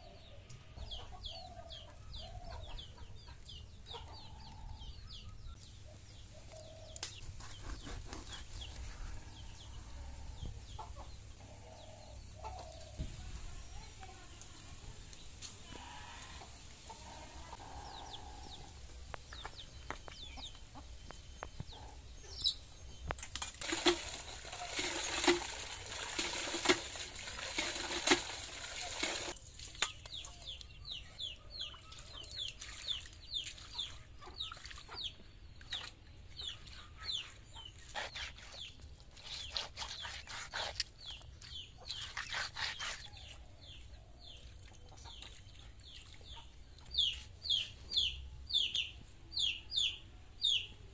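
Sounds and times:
chickens clucking: 0.0 - 13.1, 15.7 - 23.1
water splashing: 23.6 - 29.9.

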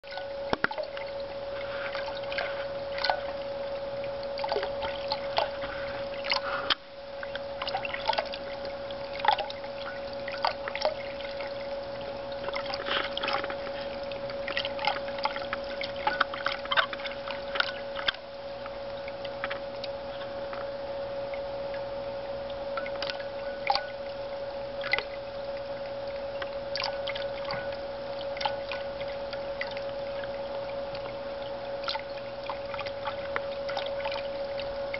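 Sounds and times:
fountain stream trickling: 0.0 - 34.9
steady hum: 0.0 - 34.9
cat lapping water: 0.6 - 3.4, 4.3 - 6.8, 7.6 - 18.2.

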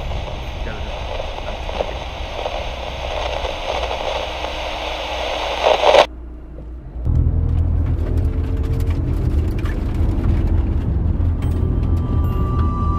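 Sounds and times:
car radio static: 0.0 - 6.1
car engine rumble: 0.0 - 12.9
road noise: 0.0 - 12.9.

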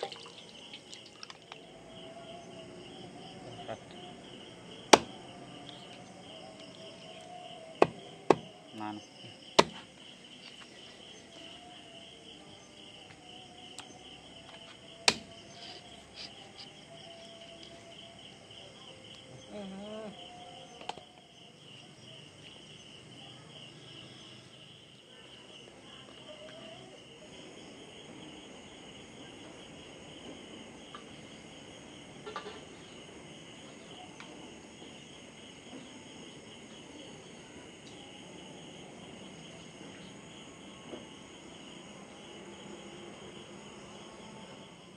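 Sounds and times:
night insects chirping: 0.0 - 44.9
knife chopping on wooden block: 7.8 - 8.5, 9.6 - 9.8.

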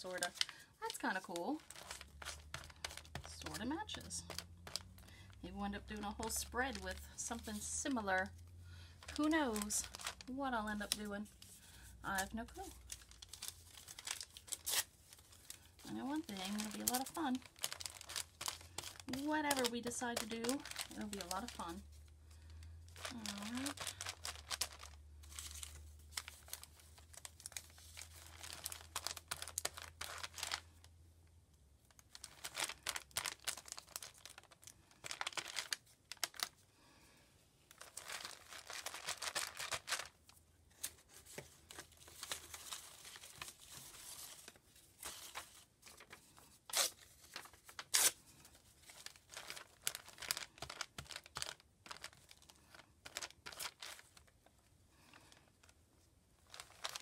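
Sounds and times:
paper rustling and tearing: 0.0 - 5.0, 12.7 - 21.8, 23.0 - 30.6, 37.7 - 40.2, 40.8 - 54.2, 56.5 - 57.0.

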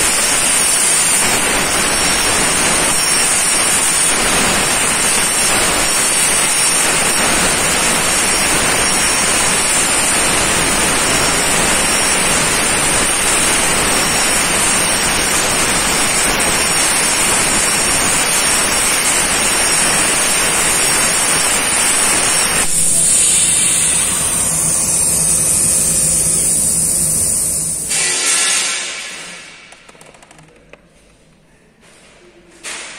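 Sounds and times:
plasma torch cutting steel: 0.0 - 29.7
air hiss: 22.4 - 29.1.

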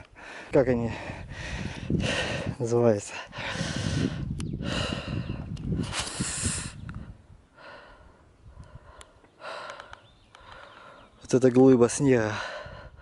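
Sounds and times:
person breathing hard: 0.0 - 11.2, 12.3 - 13.0
sharp clicks: 4.4 - 4.6, 8.6 - 10.7.

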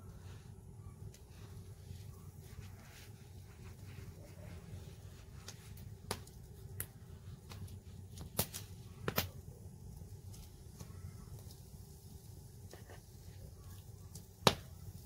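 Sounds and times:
low steady rumble: 0.0 - 15.0
bread clicking and tapping on board: 14.4 - 14.8.

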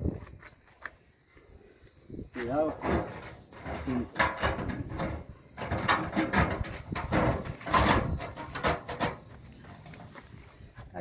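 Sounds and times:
metal scraping and creaking: 2.4 - 10.8.

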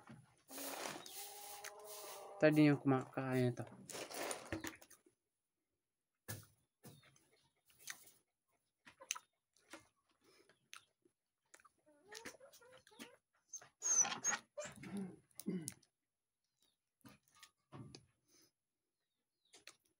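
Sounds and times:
person chewing: 10.6 - 10.9.

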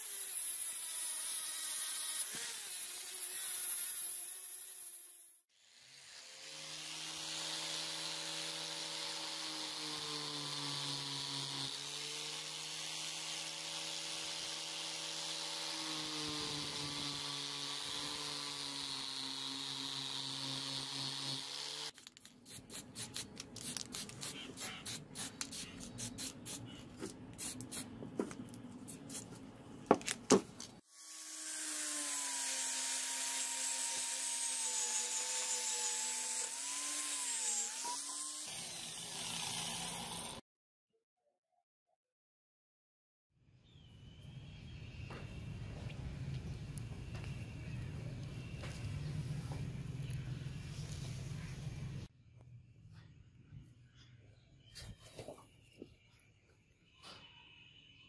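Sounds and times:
angle grinder on steel: 0.0 - 22.0, 30.9 - 40.4.

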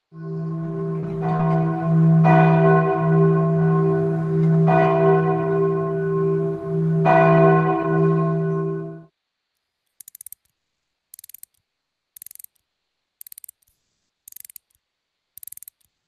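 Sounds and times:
bell tolling: 0.0 - 9.1
deep steady hum: 0.0 - 9.1.

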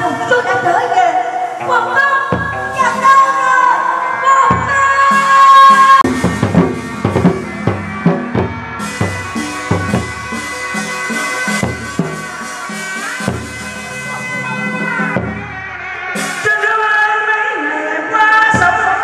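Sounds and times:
drum strokes: 1.5 - 3.2, 4.5 - 16.5
wavering reed horn melody: 1.6 - 18.0.

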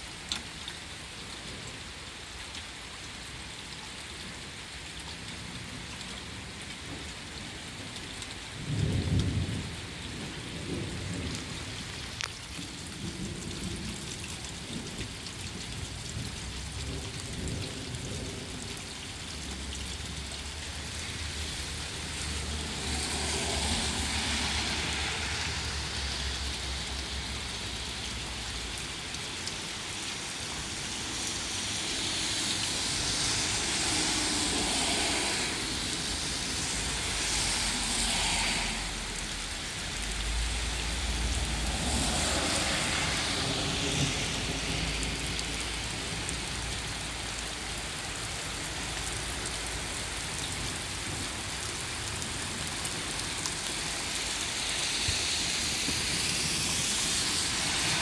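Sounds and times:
steady rain: 0.0 - 58.0
low rolling thunder: 8.6 - 11.6.

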